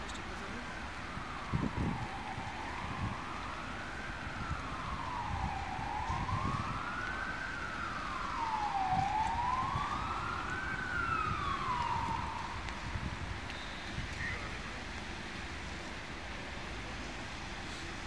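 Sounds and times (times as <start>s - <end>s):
traffic rumble: 0.0s - 18.0s
police siren wailing: 0.3s - 14.5s
wind noise on microphone: 0.9s - 14.6s.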